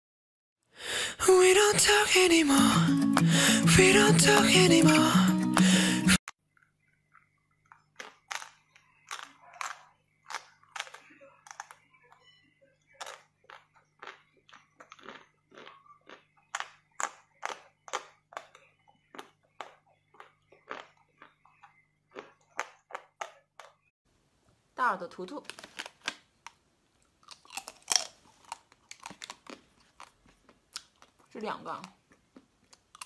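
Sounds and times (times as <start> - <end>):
frozen chocolate crunching: 6.5 - 11.9, 13.0 - 23.8, 25.4 - 33.0.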